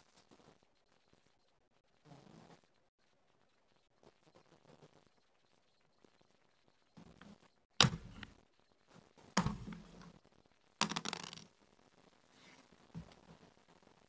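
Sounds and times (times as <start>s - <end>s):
checkers clacking on wooden board: 7.8s - 8.4s, 9.4s - 10.1s, 10.8s - 11.5s.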